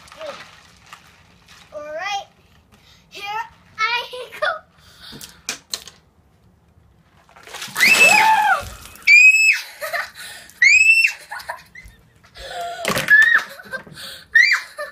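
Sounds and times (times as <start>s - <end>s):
ice water splashing: 0.0s - 2.2s, 7.3s - 9.6s
girl shrieking: 7.8s - 9.7s, 10.6s - 11.3s, 14.4s - 14.9s.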